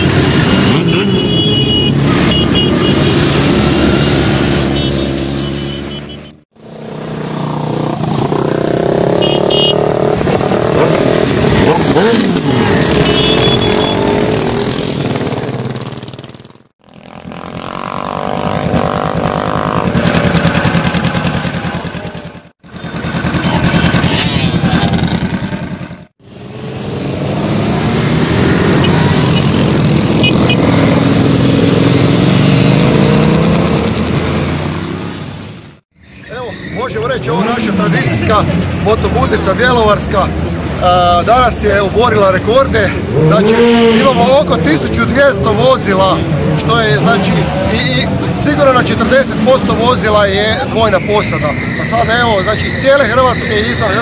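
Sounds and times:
motorcycles riding past: 0.0s - 35.8s
motorcycle engine close up: 6.5s - 34.9s.

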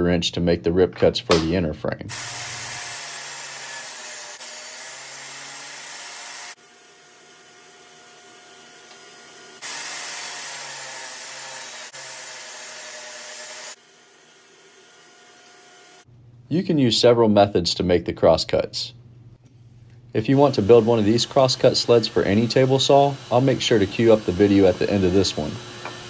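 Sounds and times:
table saw ripping wood: 2.1s - 16.1s, 20.3s - 26.0s.

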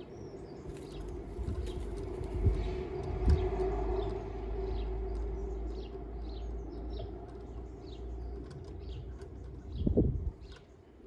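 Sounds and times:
small birds chirping: 0.0s - 11.0s
low rumble: 0.7s - 7.2s.

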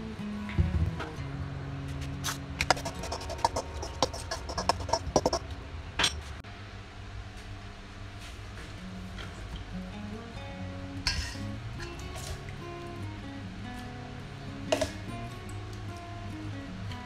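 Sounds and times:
hand mixing food in metal bowl: 2.3s - 5.5s.

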